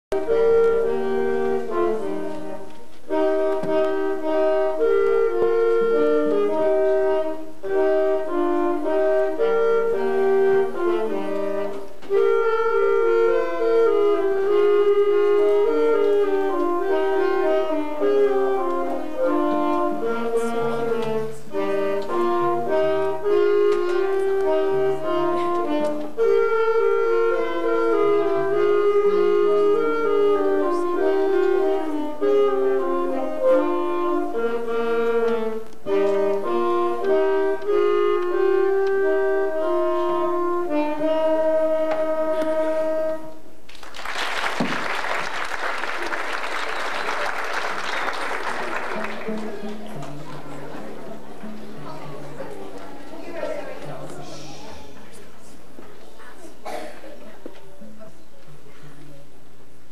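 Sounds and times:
single-reed woodwind melody: 0:00.0 - 0:43.7, 0:44.8 - 0:55.3
lower notes: 0:00.1 - 0:43.6.

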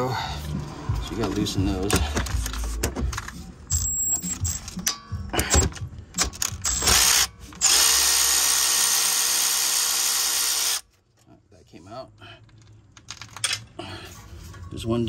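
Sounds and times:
power tool whirring: 0:06.7 - 0:10.8.

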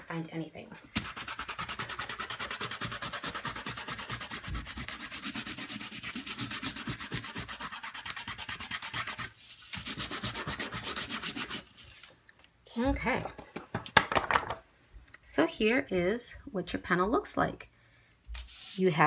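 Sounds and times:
palm rubbing over paper: 0:18.4 - 0:19.0.

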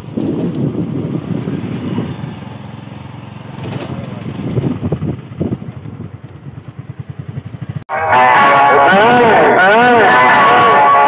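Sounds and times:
motorcycle engine puttering: 0:00.0 - 0:07.8.

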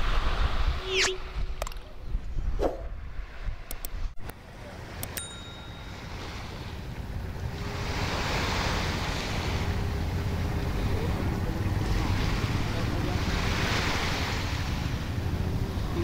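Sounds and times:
wind rumble on microphone: 0:00.0 - 0:04.3
sea waves washing onto beach: 0:04.4 - 0:16.0
short ringing click: 0:05.0 - 0:06.1.

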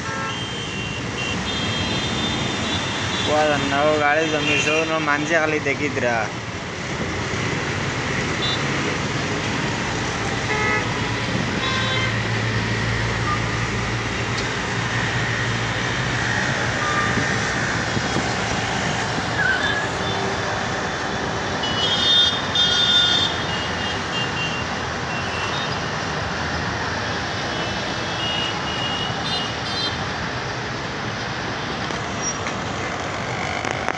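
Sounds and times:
vehicle horns tooting: 0:00.0 - 0:02.4, 0:10.5 - 0:11.0, 0:11.6 - 0:12.2, 0:21.6 - 0:25.8
road traffic noise: 0:00.0 - 0:33.9.

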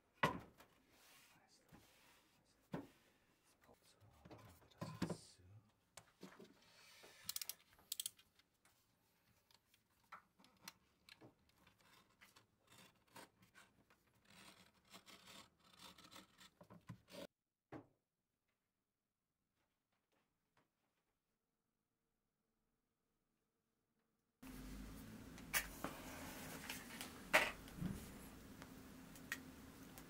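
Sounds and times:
craft knife cutting paper: 0:11.7 - 0:17.3.

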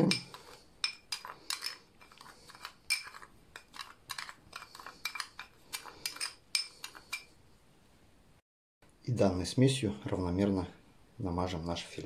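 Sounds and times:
spoon clinking and scraping glass: 0:00.0 - 0:07.3.

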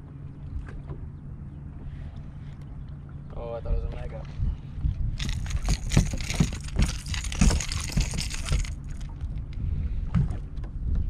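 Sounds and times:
fish thrashing and splashing: 0:05.2 - 0:09.2
clatters and rattles: 0:05.2 - 0:09.4.

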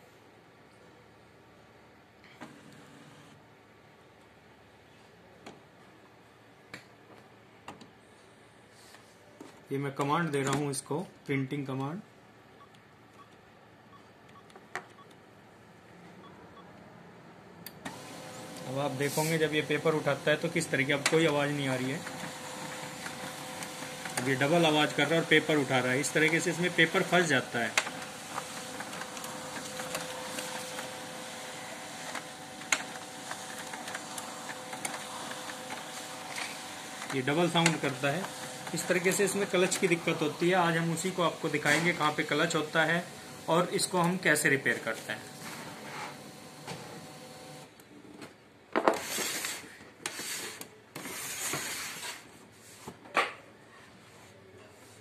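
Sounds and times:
printer motor hum: 0:02.4 - 0:03.4, 0:17.8 - 0:47.8
sharp printer clicks: 0:19.3 - 0:40.0.

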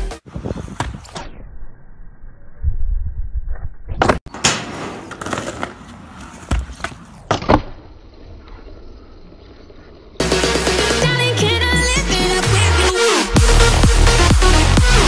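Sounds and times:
skateboard wheels rolling: 0:04.0 - 0:10.2.

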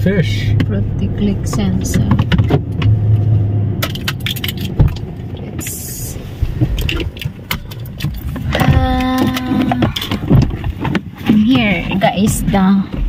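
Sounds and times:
car road and engine rumble: 0:00.0 - 0:13.0
clicks and light rattles: 0:03.8 - 0:05.8, 0:06.4 - 0:13.0.

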